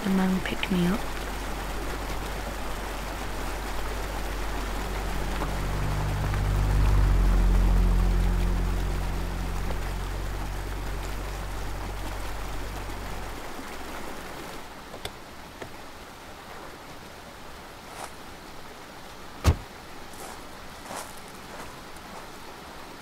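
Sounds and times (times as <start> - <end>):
low hum: 0.0 - 14.6
stream running over rocks: 0.0 - 23.0
car door clunk: 19.4 - 19.7.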